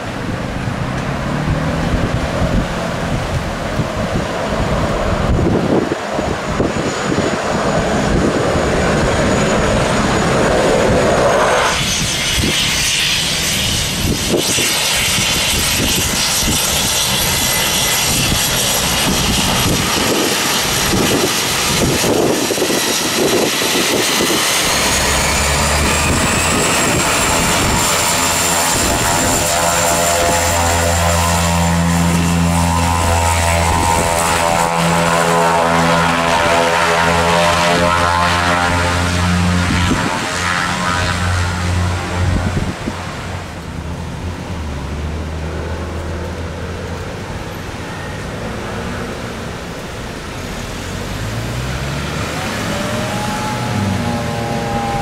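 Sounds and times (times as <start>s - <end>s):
propeller drone: 0.0s - 55.0s
turbine whine: 0.0s - 55.0s.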